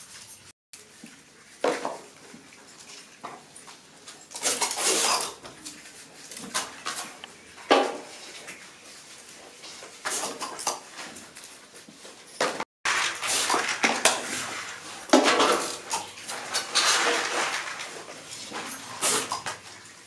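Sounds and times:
foil wrappers crinkling: 12.9s - 20.0s.

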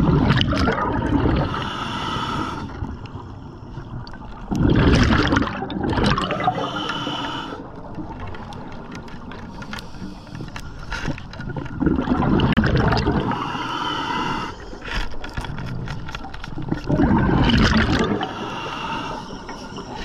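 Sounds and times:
exhaled bubbles gurgling underwater: 0.0s - 9.4s, 11.0s - 20.0s
regulator inhalation hissing: 6.4s - 7.7s, 13.3s - 14.8s.

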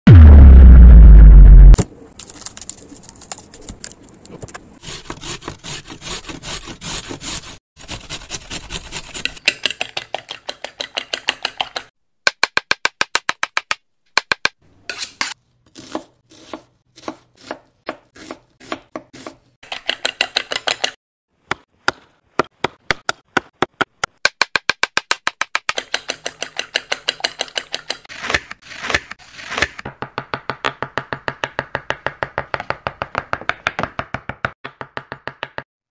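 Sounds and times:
knife chopping on wooden board: 15.8s - 35.6s.

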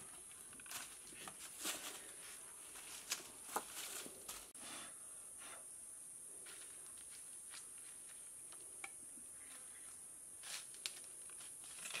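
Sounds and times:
rustling on rock and dry leaves: 0.0s - 4.5s, 10.4s - 12.0s.

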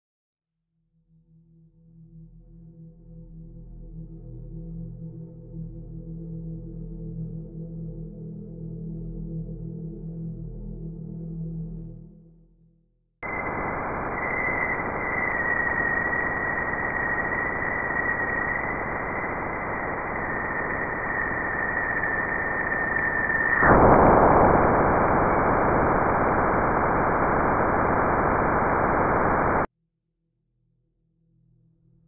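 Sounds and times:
hiss with steady high tone: 13.2s - 29.7s
loud rough hiss: 13.2s - 29.7s.

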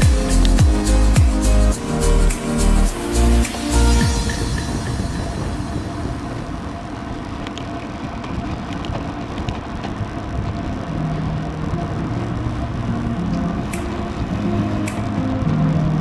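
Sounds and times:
wind rushing over microphone: 1.8s - 16.0s
tyre noise on tarmac: 7.2s - 12.4s.

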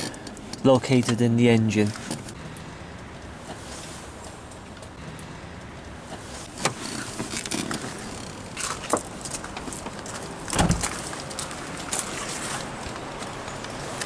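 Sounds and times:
car bonnet thump: 10.5s - 10.9s.

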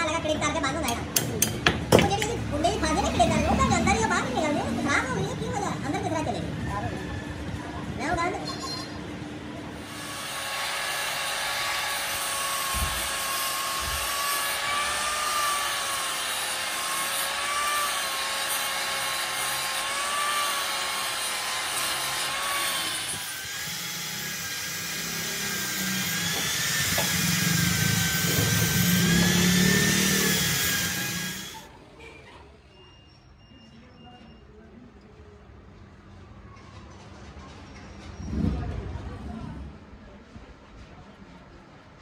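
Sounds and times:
angle grinder grinding metal: 9.8s - 31.7s.

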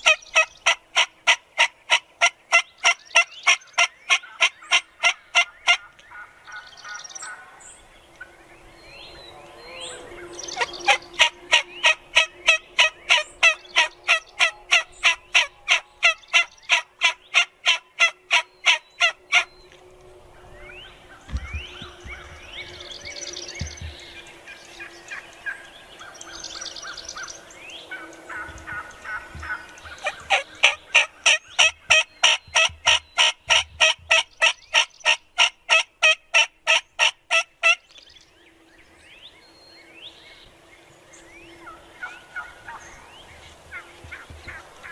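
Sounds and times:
turkeys warbling gobble calls: 0.0s - 7.6s, 9.2s - 37.9s, 41.6s - 44.9s
turkeys yelping: 0.0s - 7.6s, 9.8s - 19.8s, 24.5s - 37.8s, 41.6s - 44.9s.

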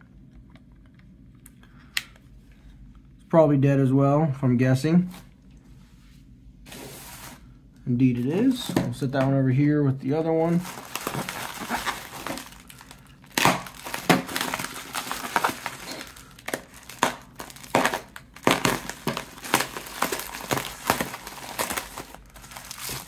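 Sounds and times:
plastic packaging crinkling: 10.4s - 23.0s.

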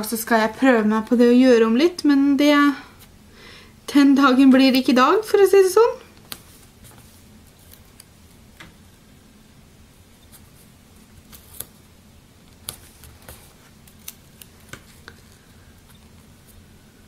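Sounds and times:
sticker paper crackles: 12.5s - 15.4s.

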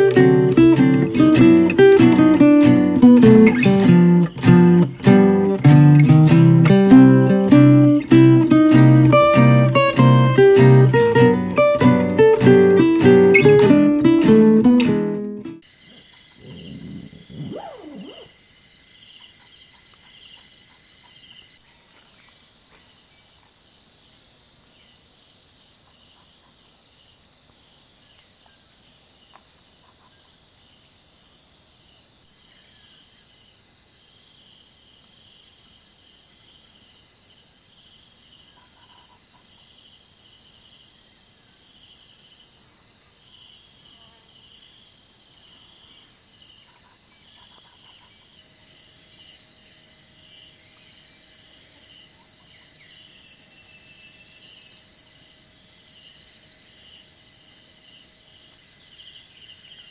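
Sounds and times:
insect lower pulsing call: 0.0s - 14.9s, 15.6s - 23.4s, 37.9s - 40.0s, 43.2s - 59.9s
insect higher pulsed call: 0.0s - 18.5s
insects high steady trill: 0.0s - 18.6s.

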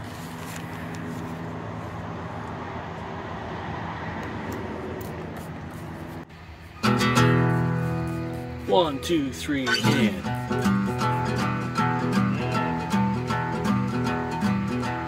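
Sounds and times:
paper towel rubbing on glass: 9.8s - 11.5s.

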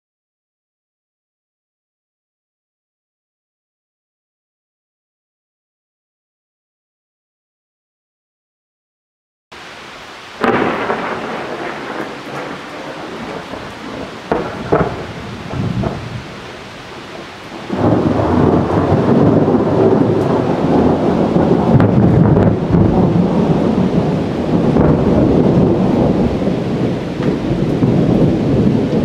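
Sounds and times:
steady rain: 9.5s - 29.0s
thunder rumbling and crackling: 10.4s - 29.0s.

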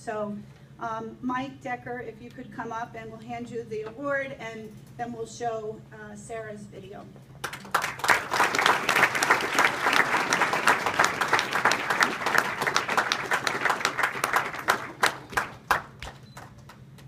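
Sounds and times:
audience applauding: 7.4s - 16.8s.

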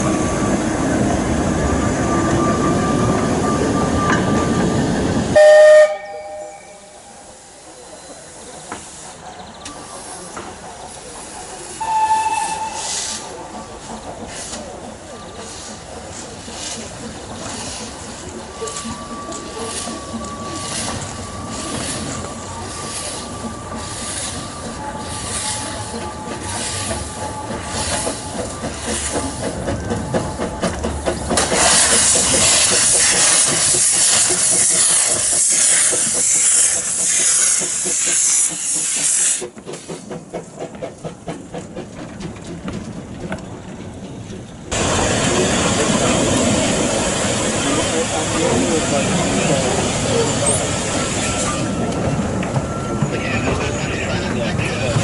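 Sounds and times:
steam locomotive exhaust beats: 0.0s - 55.0s
loud hiss of escaping steam: 6.8s - 29.6s, 31.4s - 40.7s, 44.7s - 51.6s.

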